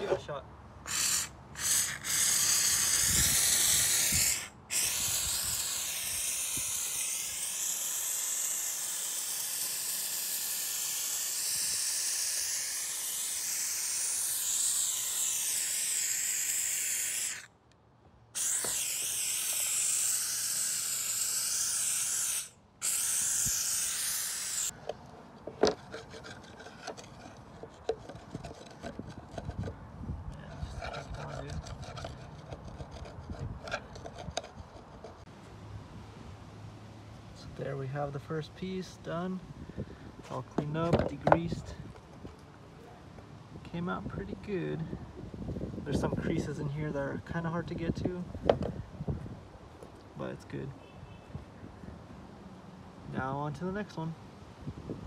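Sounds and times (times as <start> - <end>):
steam cleaner hissing: 0.9 - 17.5, 18.4 - 24.7
screwdriver scraping and clicking: 24.8 - 29.8, 30.5 - 35.2.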